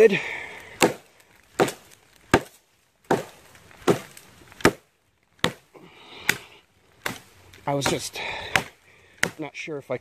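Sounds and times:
knife chopping into tree trunk: 0.8 - 4.8, 5.4 - 5.6, 7.0 - 9.5.

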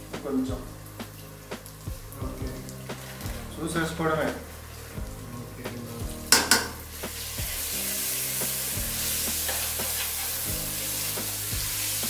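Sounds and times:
potatoes sizzling in oil: 0.0 - 12.0
metal spoon clanking against pot: 6.3 - 6.8.

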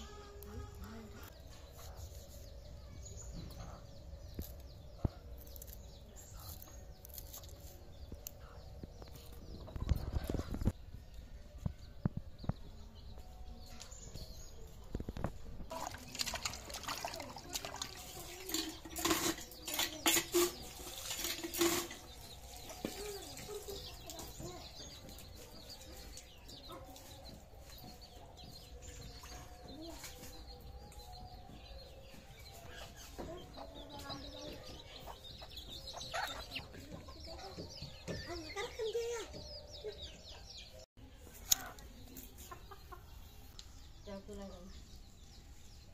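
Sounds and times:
water splashing into metal bowl: 15.7 - 21.9
water sloshing: 15.7 - 22.8.

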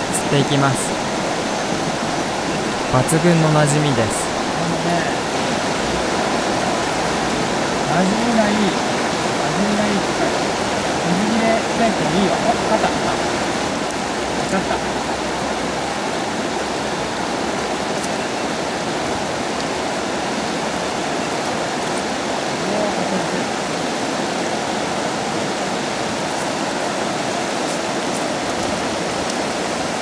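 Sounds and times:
river water rushing: 0.0 - 30.0.

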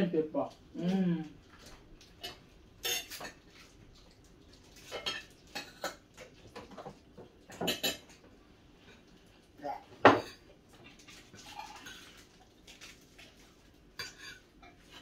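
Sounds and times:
cutlery clinking against plates: 1.6 - 3.4, 4.8 - 8.3, 10.0 - 10.5, 14.0 - 15.0.

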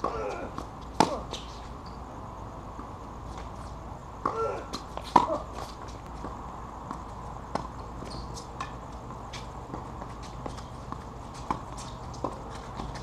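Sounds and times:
tennis ball bouncing: 0.0 - 1.6, 4.2 - 13.0
racket hitting tennis ball: 0.0 - 1.7, 4.2 - 13.0
footsteps on hard court: 2.8 - 13.0.

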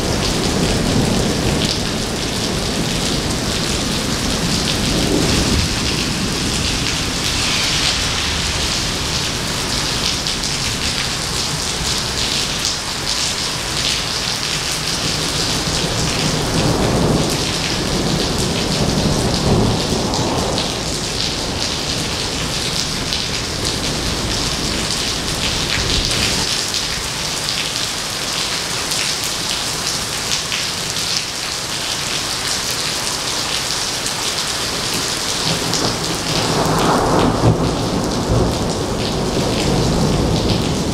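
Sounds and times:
thunder rumbling: 0.0 - 13.2, 14.8 - 26.5, 35.4 - 40.9
heavy rain on pavement: 0.0 - 40.9.

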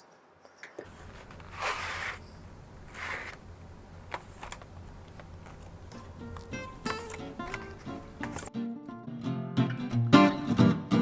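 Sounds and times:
box sliding swishes: 0.9 - 3.4.

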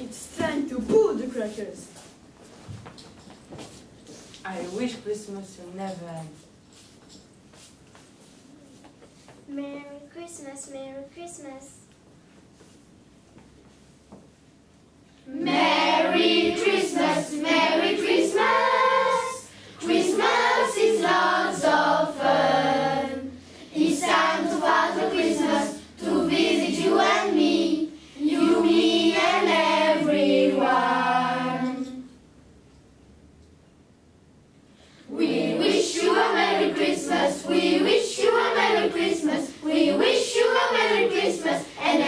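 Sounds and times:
children singing together: 15.3 - 32.2, 35.1 - 42.0.

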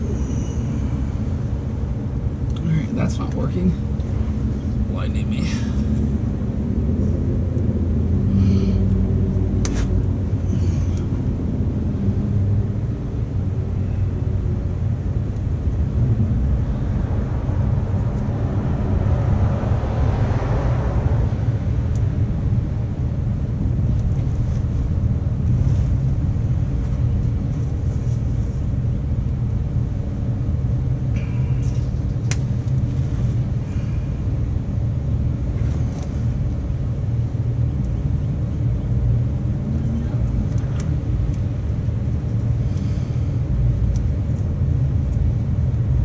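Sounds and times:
car passing: 0.0 - 28.8
low rumble of vehicle noise: 0.0 - 46.0.

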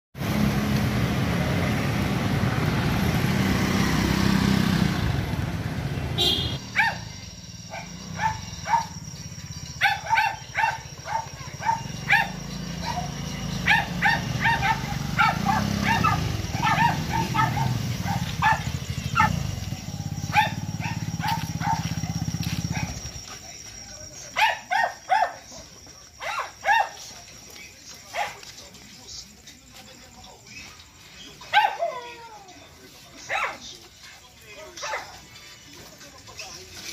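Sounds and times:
scooter engine running: 0.2 - 23.6
dogs barking: 6.2 - 23.2, 24.2 - 27.2, 28.0 - 28.6, 31.2 - 32.2, 33.2 - 33.8, 34.7 - 35.2.

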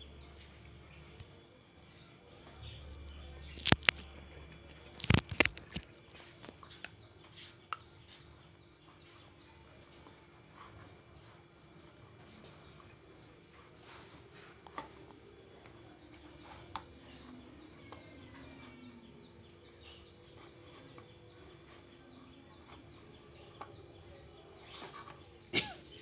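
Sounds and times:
faint steady hum: 0.0 - 26.0
hands kneading dough: 4.9 - 26.0.

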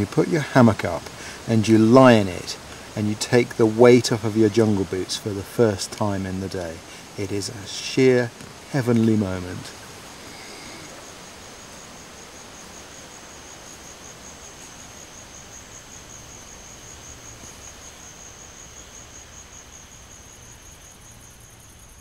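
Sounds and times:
insect trilling: 0.0 - 22.0
jungle ambience hiss: 0.0 - 22.0.

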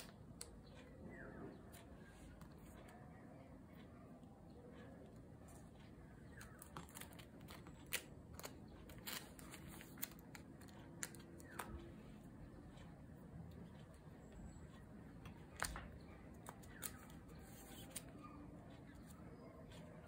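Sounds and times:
plastic card sleeves clicking and crinkling: 6.4 - 11.9, 15.5 - 18.2.

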